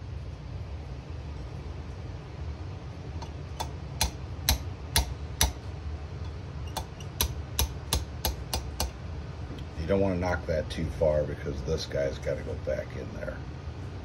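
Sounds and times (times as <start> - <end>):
hammer tapping steel pin: 3.6 - 5.6, 6.7 - 9.0.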